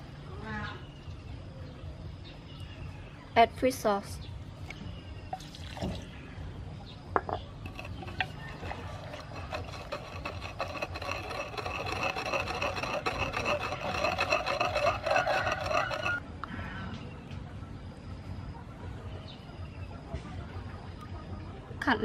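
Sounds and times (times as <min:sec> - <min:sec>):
pestle grinding paste: 0:07.6 - 0:16.2.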